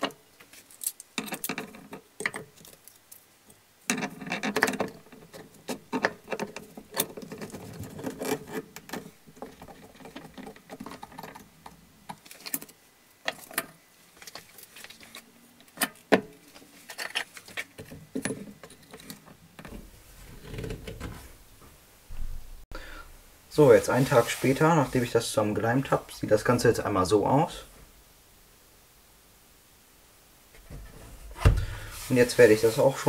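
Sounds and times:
metal clamps clicking and rattling: 0.0 - 3.2.

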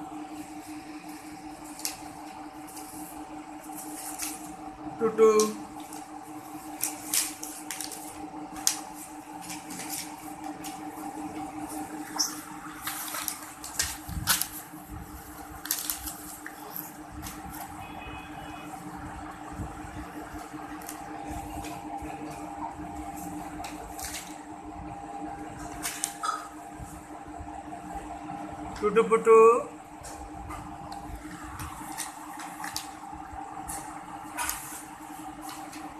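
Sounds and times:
steady electrical hum: 0.0 - 35.9
paper rustling and crinkling: 0.4 - 4.7, 5.6 - 17.8, 19.6 - 24.5, 25.3 - 26.2, 30.0 - 35.9.

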